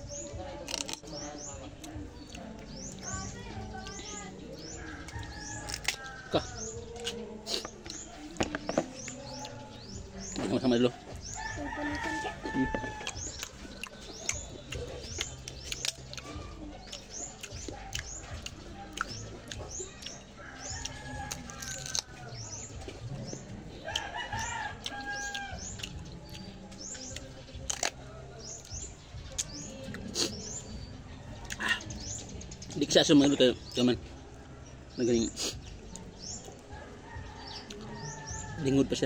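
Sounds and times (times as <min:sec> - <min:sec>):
small birds chirping: 0:00.0 - 0:39.0
rooster crowing: 0:11.4 - 0:13.3.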